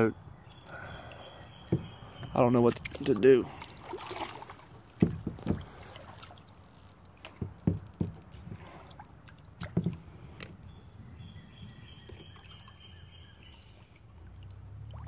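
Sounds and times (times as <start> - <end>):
water lapping against boat hull: 0.5 - 15.0
knock on hull: 1.7 - 2.0, 5.0 - 5.7, 7.4 - 8.2.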